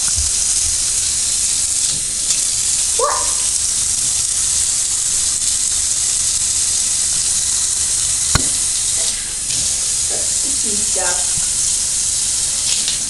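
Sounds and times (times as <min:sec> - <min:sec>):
shower water running into bathtub: 0:00.0 - 0:13.0
sharp click: 0:08.4 - 0:08.6.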